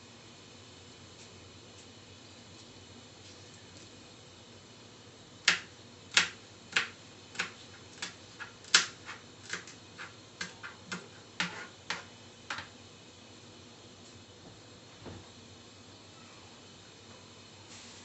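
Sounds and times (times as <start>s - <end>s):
oil popping in a pan: 5.5s - 12.8s.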